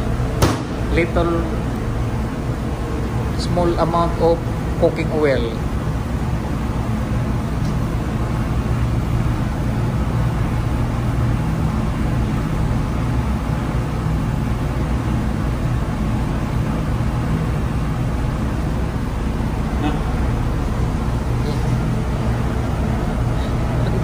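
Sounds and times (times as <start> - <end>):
low machinery hum: 0.0 - 24.0.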